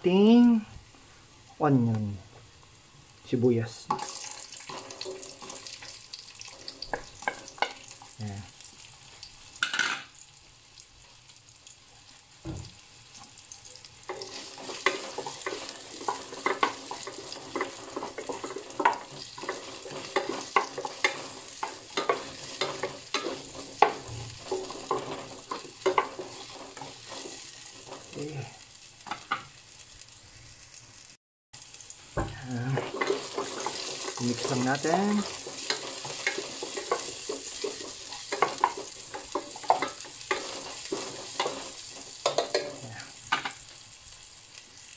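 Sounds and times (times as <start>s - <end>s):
onion and garlic sizzling in oil: 0.0s - 44.9s
utensil scraping pan: 14.1s - 28.2s, 32.7s - 42.8s.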